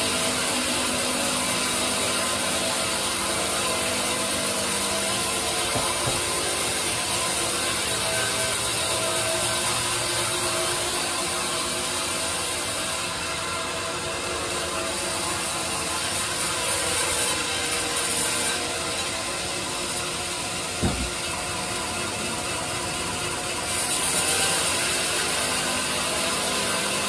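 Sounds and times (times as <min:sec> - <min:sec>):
band saw cutting log: 0:00.0 - 0:27.0
low thump: 0:20.8 - 0:21.2.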